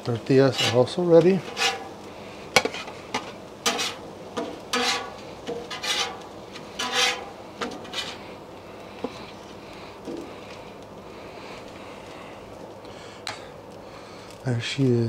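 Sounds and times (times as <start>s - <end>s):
metal spatula scraping griddle: 0.3s - 8.4s.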